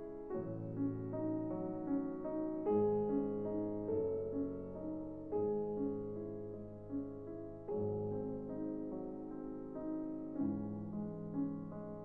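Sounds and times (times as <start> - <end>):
gentle piano music: 0.0 - 12.0.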